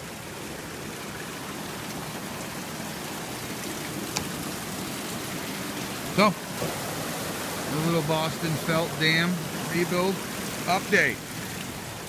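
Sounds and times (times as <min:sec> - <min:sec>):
river water rushing through dam: 0:00.0 - 0:12.0.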